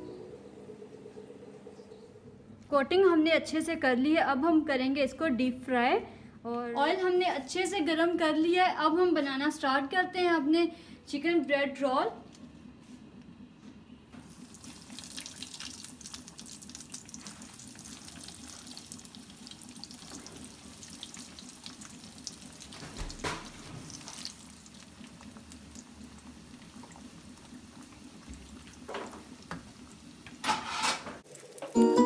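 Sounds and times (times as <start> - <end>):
oil sizzling and crackling: 14.2 - 32.0.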